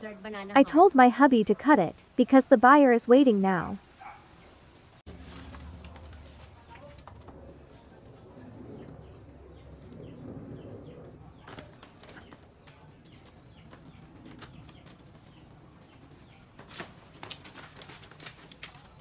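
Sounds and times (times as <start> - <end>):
leaves rustling: 3.0 - 10.0, 11.3 - 19.0.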